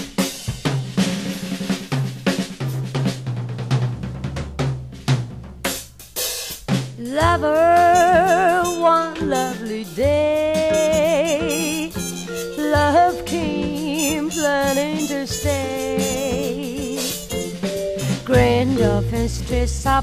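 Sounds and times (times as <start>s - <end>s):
jazz drum kit: 0.0s - 20.0s
walking bass line: 10.0s - 20.0s.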